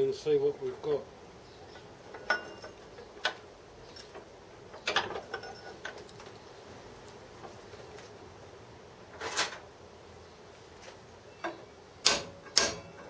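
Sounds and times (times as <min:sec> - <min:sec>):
hammer tapping metal: 0:12.0 - 0:13.0.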